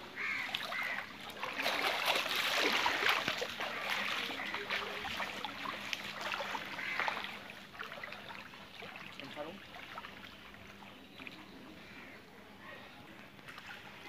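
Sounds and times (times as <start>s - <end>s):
wading through shallow water: 0.0s - 14.0s.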